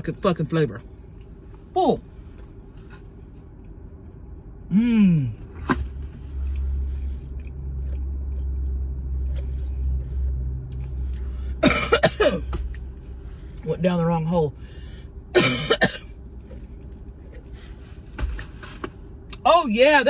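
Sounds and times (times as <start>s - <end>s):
low steady rumble: 0.0s - 20.0s
woman coughing and choking: 11.6s - 12.6s, 15.3s - 16.2s.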